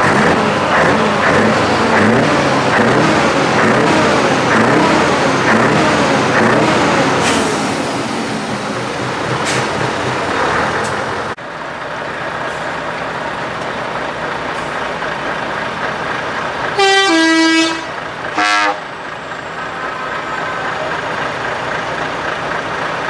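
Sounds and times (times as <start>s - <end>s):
truck engines passing slowly: 0.0s - 23.0s
truck air horn: 16.8s - 20.8s.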